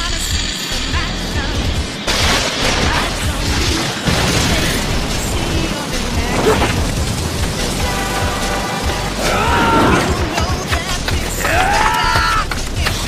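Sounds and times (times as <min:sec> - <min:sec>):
fight music: 0:01.0 - 0:13.0
rushing blast with booming impacts: 0:01.2 - 0:11.3.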